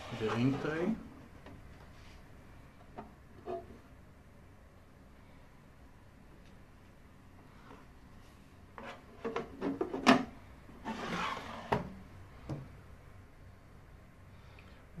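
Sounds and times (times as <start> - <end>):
drawer scraping shut: 9.6 - 12.0.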